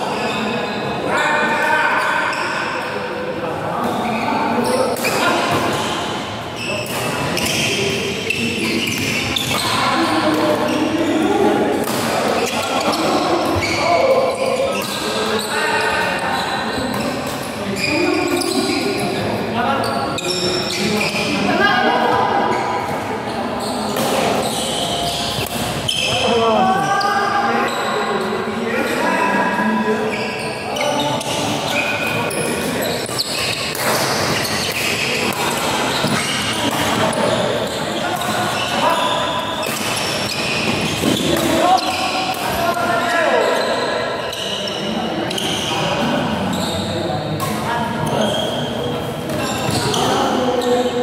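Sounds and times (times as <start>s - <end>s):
rackets hitting shuttlecock: 32.0s - 37.4s, 39.6s - 42.8s.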